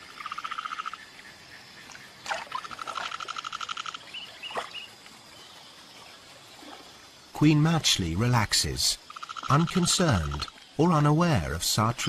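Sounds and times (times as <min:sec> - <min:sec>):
rapid pulsed animal trill: 0:02.5 - 0:04.2, 0:09.0 - 0:10.5.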